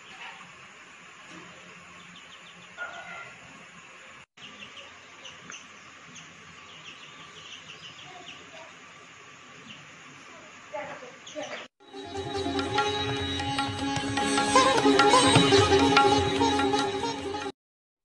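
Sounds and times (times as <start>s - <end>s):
steady background hiss: 0.0s - 16.7s
sparrows chirping: 1.3s - 3.5s, 4.4s - 8.8s, 9.5s - 11.7s.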